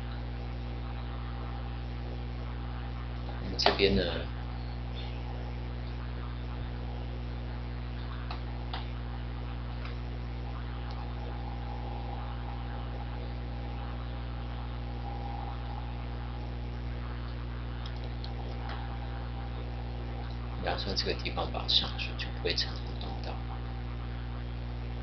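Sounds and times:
electrical mains hum: 0:00.0 - 0:25.0
faint clicks: 0:07.9 - 0:11.3, 0:16.4 - 0:18.9, 0:20.1 - 0:20.4.

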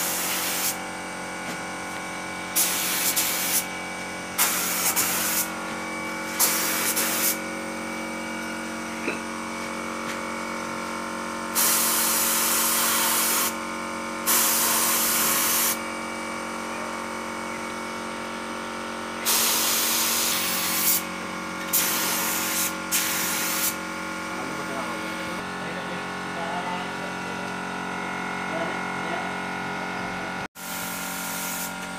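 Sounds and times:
spray gun hissing: 0:00.0 - 0:00.8, 0:02.5 - 0:03.7, 0:04.4 - 0:05.6, 0:06.2 - 0:07.5, 0:11.5 - 0:13.6, 0:14.3 - 0:15.8, 0:19.2 - 0:21.1, 0:21.7 - 0:23.8, 0:30.6 - 0:31.8.

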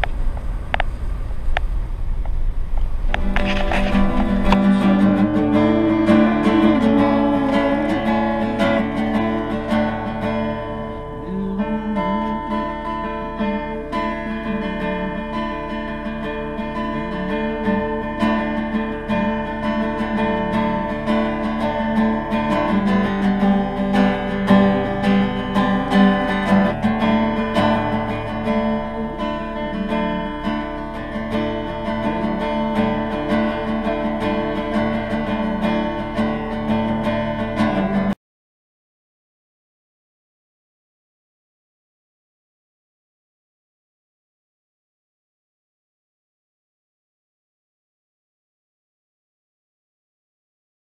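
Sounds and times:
acoustic guitar picking: 0:00.0 - 0:38.2.

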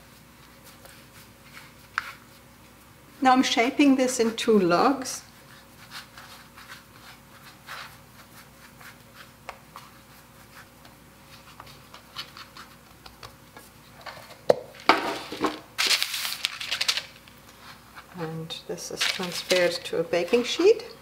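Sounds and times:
hands rolling dough on wood: 0:00.0 - 0:02.9, 0:03.8 - 0:14.1.

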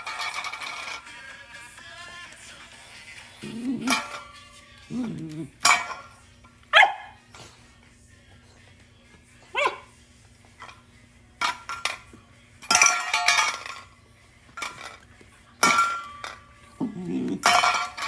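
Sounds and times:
metal bowl clanging on tile: 0:00.0 - 0:01.1, 0:03.6 - 0:06.2, 0:11.4 - 0:13.9, 0:14.5 - 0:18.0
puppy yip: 0:06.7 - 0:07.2, 0:09.5 - 0:09.9.

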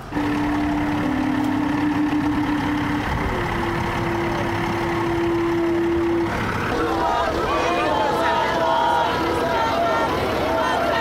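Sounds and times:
steady horn-like tone: 0:00.0 - 0:07.3.

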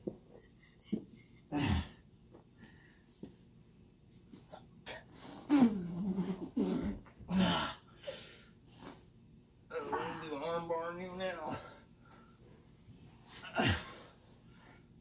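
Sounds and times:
people grunting and exhaling: 0:01.5 - 0:02.0, 0:05.5 - 0:08.2, 0:09.7 - 0:10.3, 0:13.4 - 0:14.1.

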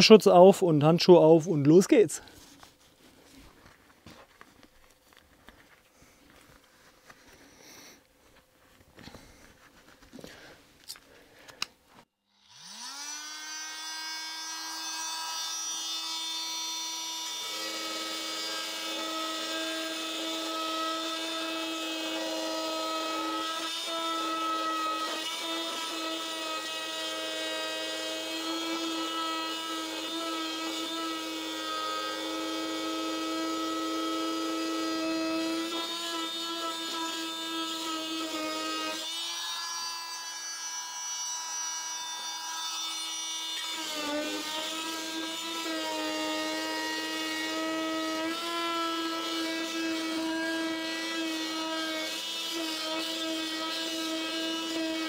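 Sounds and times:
blade grinding grout: 0:12.5 - 0:55.0.

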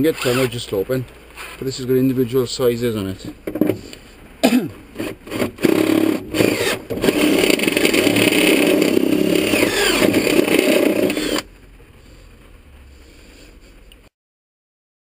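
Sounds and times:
cordless drill whirring: 0:00.2 - 0:00.6, 0:05.3 - 0:11.5.

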